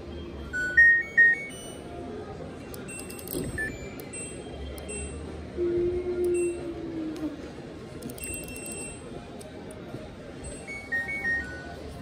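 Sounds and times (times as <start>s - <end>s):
washing machine beep tune: 0.2s - 1.9s, 2.9s - 5.3s, 6.4s - 6.6s, 10.4s - 11.8s.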